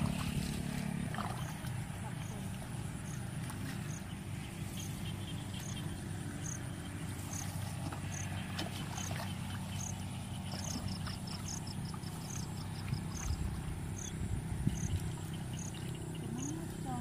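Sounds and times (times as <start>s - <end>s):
low engine-like drone: 0.0s - 17.0s.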